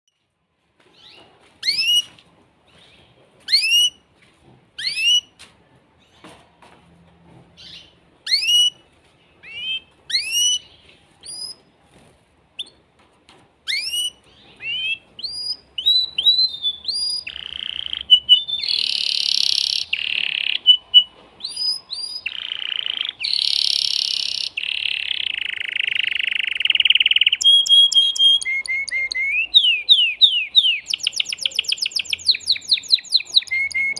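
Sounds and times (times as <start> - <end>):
canary singing: 1.0 - 2.2, 4.8 - 5.4, 7.6 - 11.6, 13.6 - 33.9.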